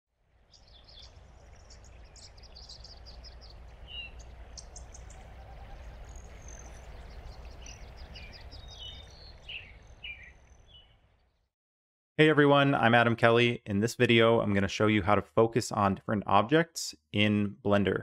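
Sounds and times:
birds chirping: 0.4s - 11.5s
steady low rumble: 0.7s - 9.3s.

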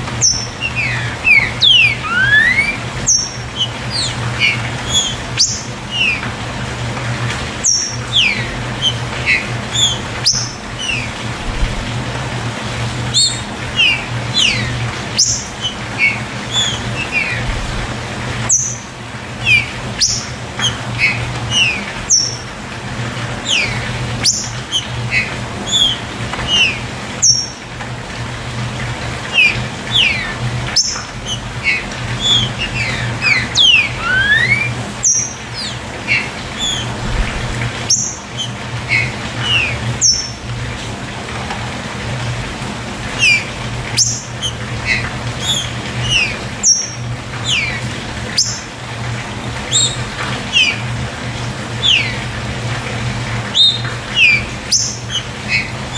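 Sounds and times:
songbirds chirping: 0.0s - 6.3s, 7.6s - 11.2s
steady low hum: 0.0s - 55.9s.

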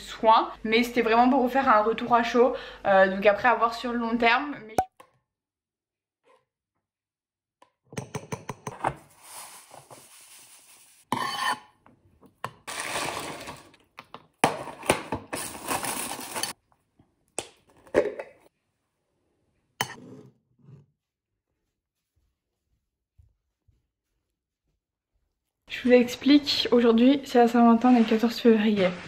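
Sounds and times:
spoon scraping in ceramic bowl: 11.1s - 11.8s.

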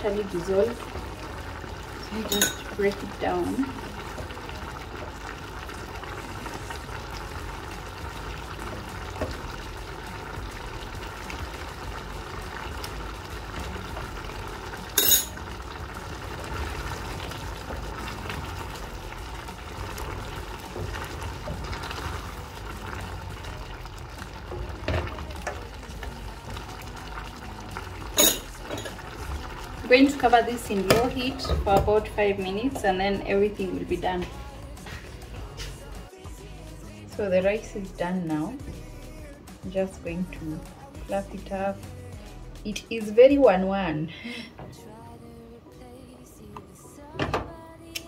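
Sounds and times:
stew simmering in a pan: 0.0s - 37.7s.

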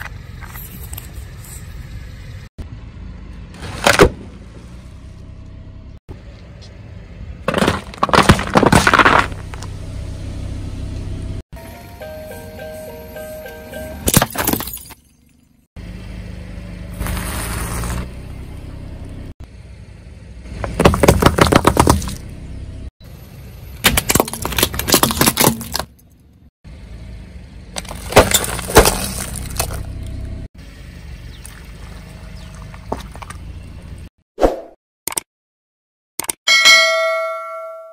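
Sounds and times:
car and tyre noise: 0.0s - 34.8s
glass and plastic crunching: 7.5s - 9.6s, 14.1s - 15.3s, 23.9s - 26.0s, 27.8s - 29.9s.

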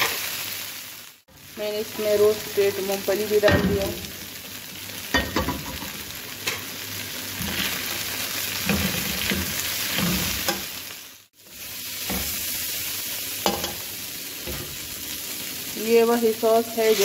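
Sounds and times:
food sizzling in a wok: 0.0s - 17.0s
metal spatula scraping a pan: 7.4s - 10.7s, 16.8s - 17.0s.

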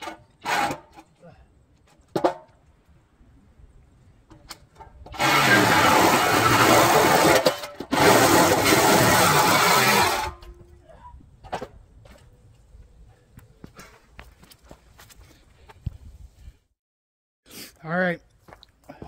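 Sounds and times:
reciprocating saw cutting steel: 0.0s - 1.0s, 5.1s - 10.4s.

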